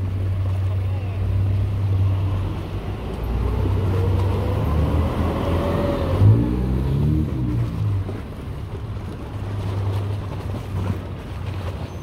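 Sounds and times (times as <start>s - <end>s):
motor engine passing: 1.6s - 8.3s.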